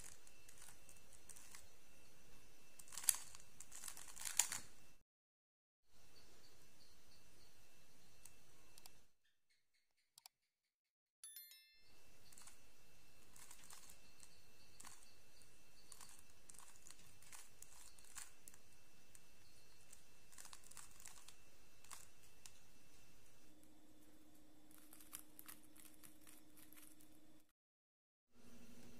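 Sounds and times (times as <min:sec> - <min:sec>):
bell-like chime: 0:11.2 - 0:12.9.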